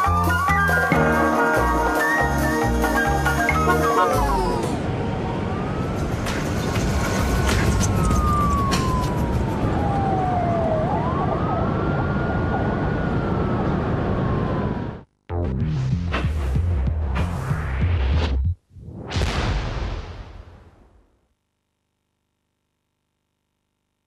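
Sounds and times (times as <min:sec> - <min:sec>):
police siren wailing: 0:00.0 - 0:15.0.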